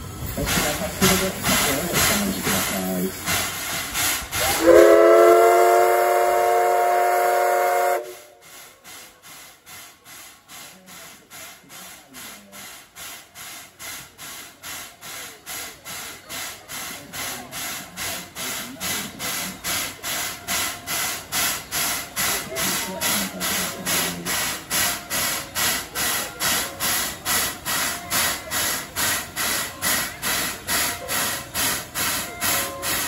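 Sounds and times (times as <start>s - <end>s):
rhythmic steam locomotive puffs: 0.0s - 33.0s
steam whistle blast: 4.4s - 8.4s.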